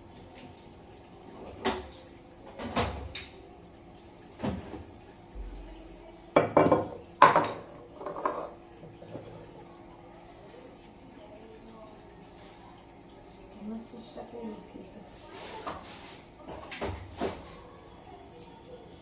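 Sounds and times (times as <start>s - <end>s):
containers and bottles clinking: 6.4s - 9.5s.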